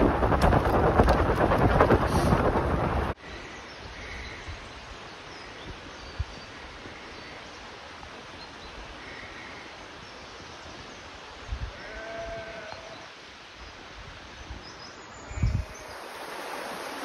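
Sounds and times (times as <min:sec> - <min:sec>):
outdoor background hiss: 0:03.2 - 0:17.0
sheep bleating: 0:11.8 - 0:13.0.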